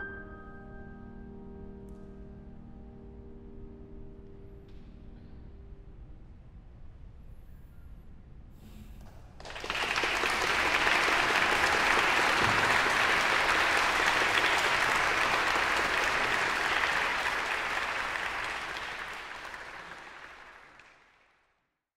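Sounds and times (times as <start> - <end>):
audience applauding: 9.4 - 21.5.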